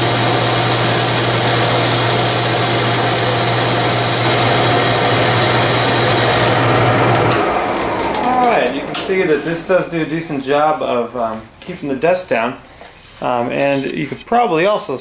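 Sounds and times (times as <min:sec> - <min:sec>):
shop vac hiss: 0:00.0 - 0:04.3
sander motor hum: 0:00.0 - 0:11.3.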